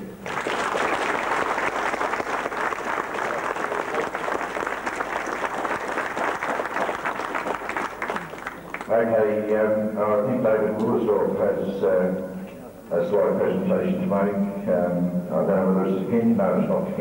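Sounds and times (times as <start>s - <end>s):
audience applauding: 0.0s - 8.9s.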